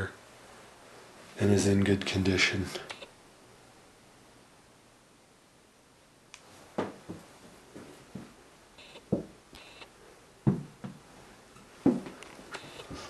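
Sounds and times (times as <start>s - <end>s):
footsteps on wooden floor: 6.8s - 8.4s, 9.1s - 9.4s, 10.4s - 11.0s, 11.8s - 12.2s.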